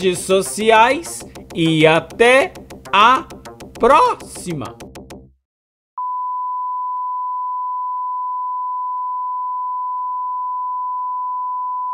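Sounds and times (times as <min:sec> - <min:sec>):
film soundtrack: 0:00.0 - 0:05.4
steady electronic test tone beep: 0:06.0 - 0:11.9.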